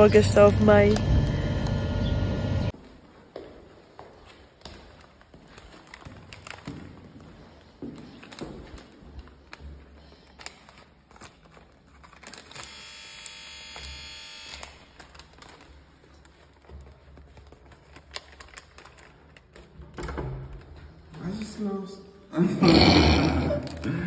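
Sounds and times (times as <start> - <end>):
footsteps: 0.0 - 10.7
paper bag crinkling: 5.5 - 7.0, 8.1 - 12.9, 14.6 - 19.9
electric doorbell buzzing: 12.6 - 14.8.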